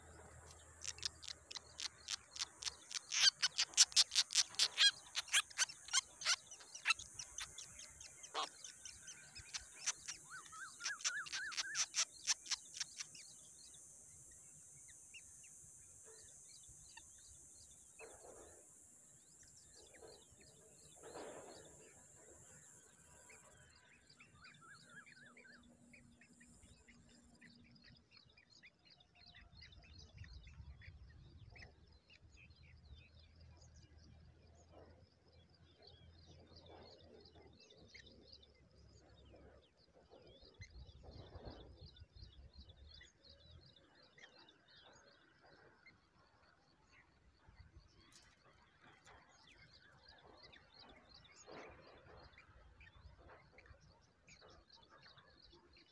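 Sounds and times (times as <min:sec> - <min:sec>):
birds sharp clicking calls: 0:00.0 - 0:13.2
faint bird chirps: 0:00.0 - 0:55.9.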